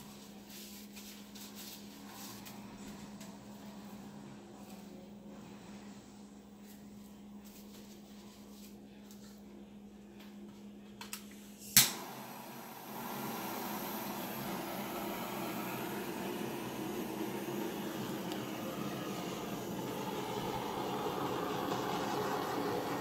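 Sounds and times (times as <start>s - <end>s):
heat gun blowing air: 11.8s - 23.0s.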